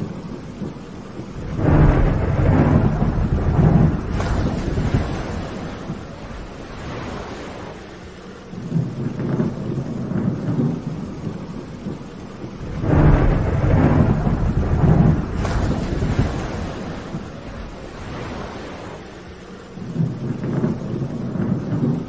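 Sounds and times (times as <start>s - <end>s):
steady rain: 0.0s - 22.0s
thunder rumbling: 0.0s - 22.0s.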